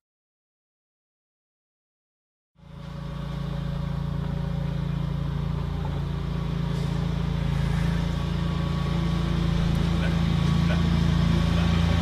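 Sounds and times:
low mechanical hum: 2.6s - 12.0s.

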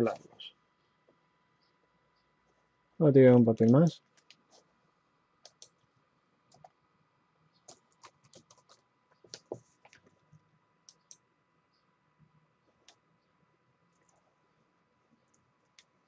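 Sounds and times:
mouse clicks: 5.4s - 5.8s, 10.9s - 11.2s.

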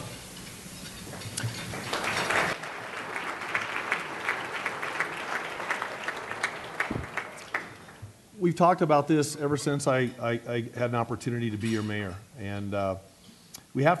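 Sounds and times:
audience applauding: 1.4s - 8.0s.

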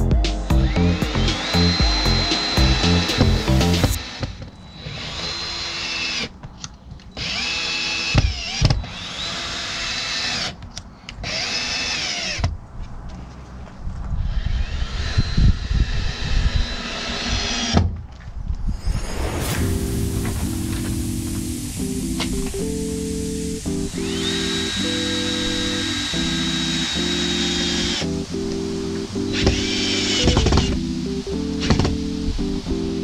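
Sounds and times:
cordless drill whining: 0.6s - 6.3s, 7.1s - 10.6s, 14.3s - 17.8s, 24.0s - 28.0s, 29.3s - 30.8s.

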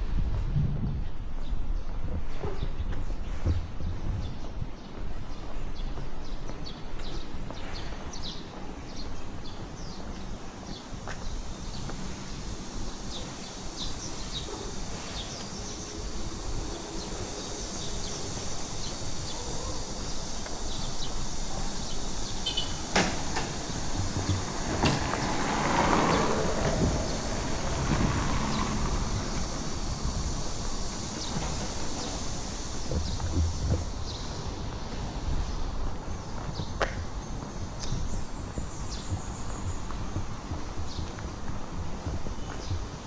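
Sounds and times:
low outdoor rumble: 21.3s - 35.9s
something passing close by: 22.8s - 32.4s.

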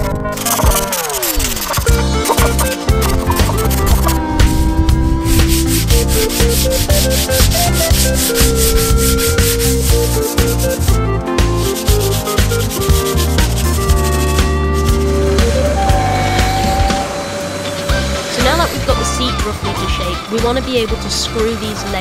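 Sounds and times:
background music: 0.0s - 22.0s
sanding sponge rubbing wood: 0.4s - 15.3s.

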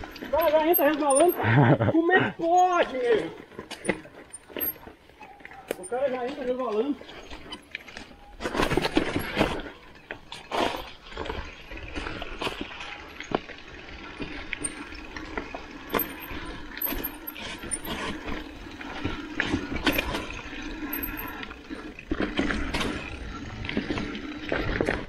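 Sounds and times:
bike rattling and knocking: 0.0s - 1.8s, 2.6s - 25.0s
bike tyres rolling over dirt: 0.0s - 1.8s, 2.4s - 25.0s.

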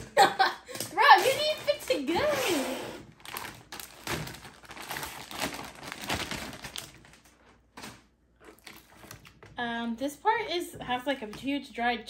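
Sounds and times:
plastic bag crinkling: 0.9s - 9.6s.

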